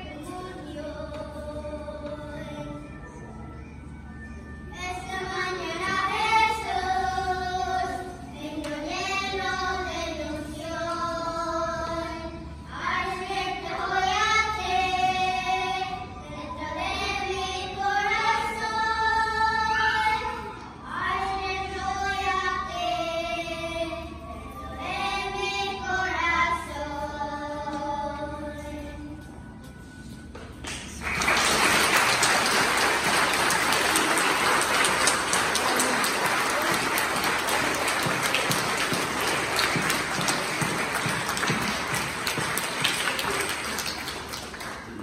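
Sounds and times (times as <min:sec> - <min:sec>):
children singing together: 0:00.0 - 0:03.1, 0:04.8 - 0:29.2, 0:32.0 - 0:44.4.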